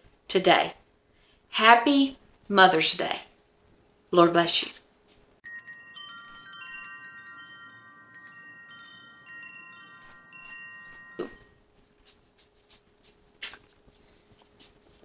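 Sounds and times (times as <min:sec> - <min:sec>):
wind chime ringing: 0:05.4 - 0:11.7.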